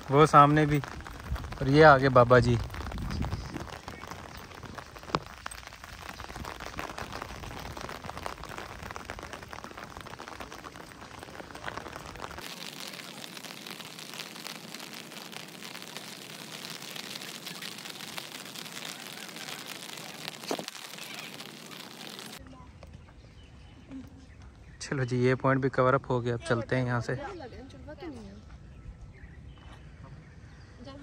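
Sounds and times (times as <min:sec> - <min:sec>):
light rain hissing: 0:00.0 - 0:22.4.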